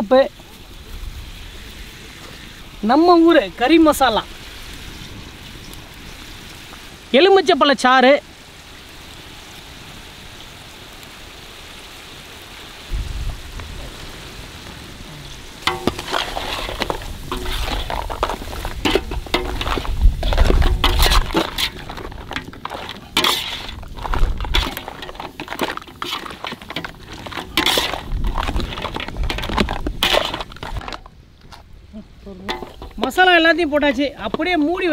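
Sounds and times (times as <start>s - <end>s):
steady sizzle: 0.0s - 34.9s
utensil scraping shells in pot: 15.6s - 31.7s, 32.5s - 34.9s.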